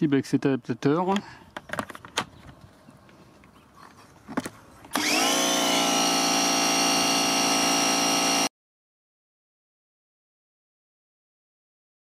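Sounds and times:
pressure washer motor whining: 4.9s - 8.5s.

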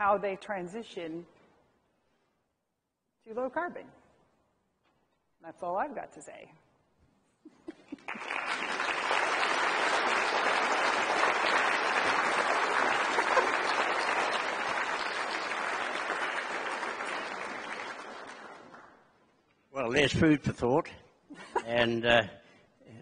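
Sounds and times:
audience applauding: 8.0s - 19.1s.

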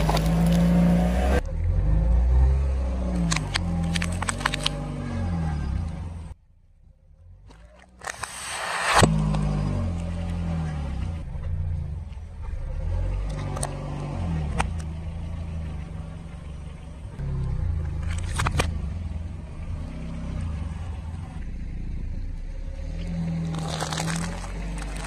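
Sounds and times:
objects cracking under tyre: 0.0s - 1.4s, 3.1s - 5.0s, 17.8s - 18.9s, 23.0s - 25.0s
car engine running at low revs: 0.0s - 25.0s.

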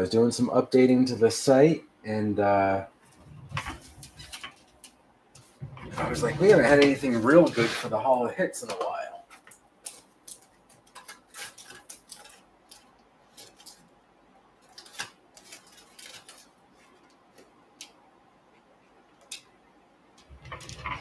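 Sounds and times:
trading cards clicking and scraping: 3.1s - 7.9s, 8.8s - 13.8s, 14.6s - 17.5s.

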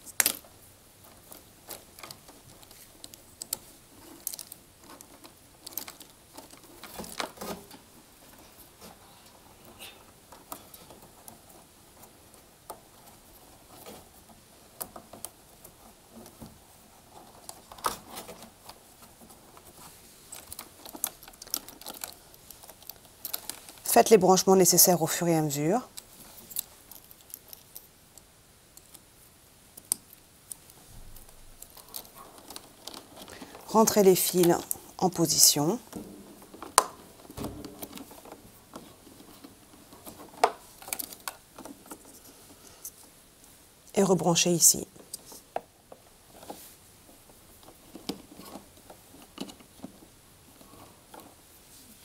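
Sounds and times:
wires rustling: 0.0s - 52.0s
plastic connectors clicking: 20.3s - 23.9s.

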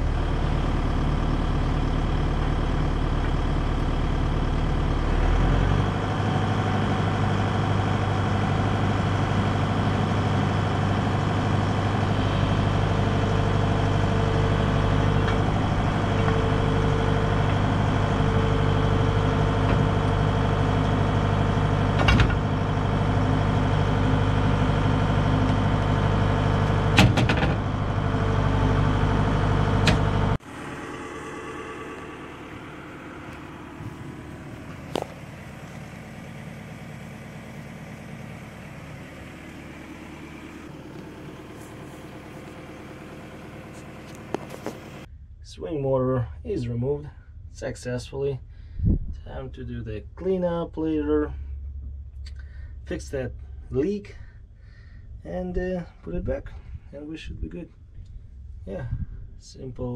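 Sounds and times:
excavator diesel engine running: 0.0s - 59.9s
hydraulic whine: 3.2s - 45.4s.

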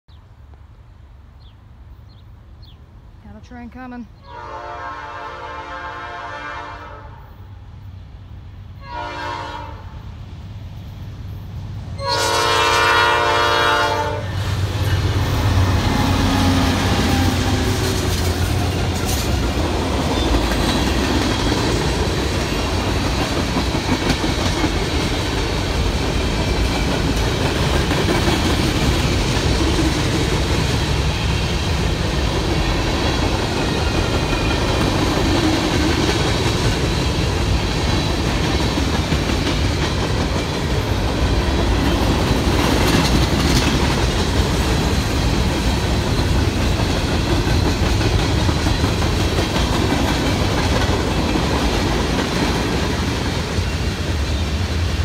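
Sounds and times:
diesel locomotives passing: 0.4s - 55.0s
train horn blasts: 4.2s - 7.4s, 8.8s - 10.0s, 12.0s - 14.4s.

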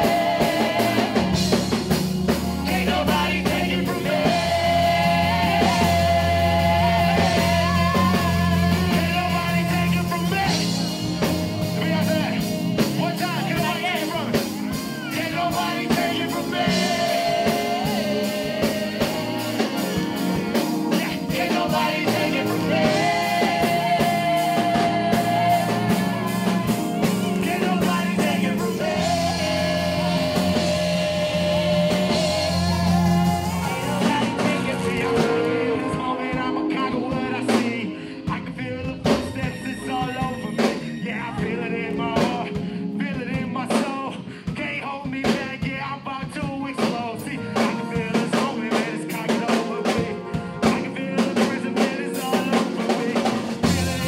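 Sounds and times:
backing singers in harmony: 0.0s - 44.6s, 47.4s - 54.0s
gospel band playing: 0.0s - 54.0s.

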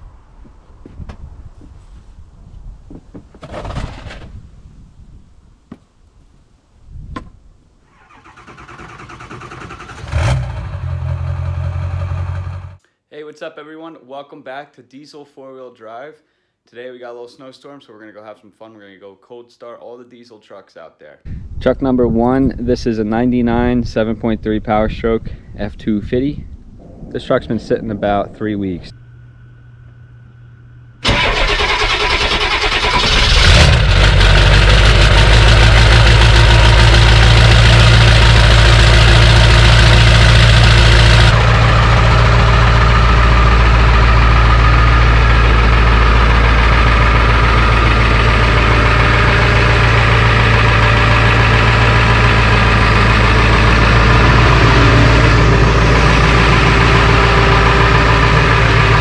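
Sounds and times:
diesel engine starting and idling: 7.9s - 12.8s, 30.9s - 59.0s.

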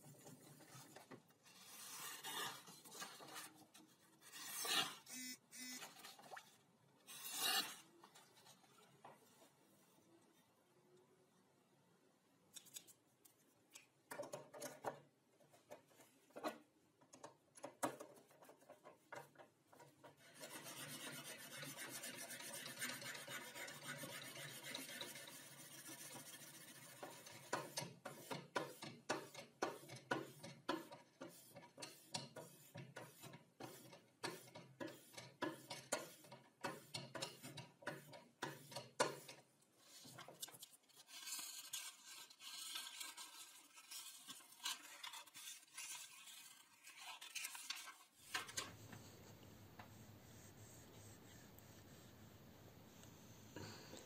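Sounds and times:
scrapes and knocks: 17.7s - 52.4s.

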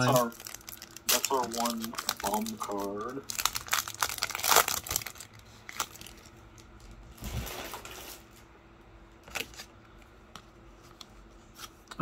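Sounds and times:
foil wrapper crinkling: 0.0s - 8.3s
rustle of wrapper and cards: 0.0s - 8.3s.

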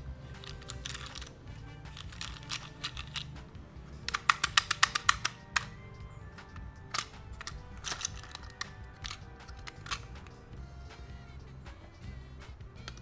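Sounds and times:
soft background music: 0.0s - 13.0s
plastic toy car clicks: 0.4s - 3.4s, 4.0s - 5.8s, 6.9s - 10.4s, 12.8s - 13.0s.

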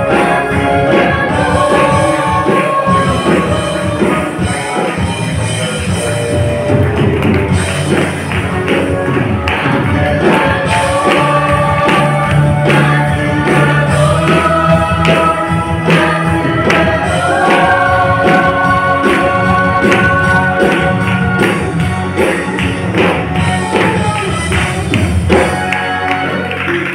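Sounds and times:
women's choir singing gospel: 0.0s - 5.3s, 9.7s - 22.4s
instrumental accompaniment with beat: 0.0s - 26.9s.

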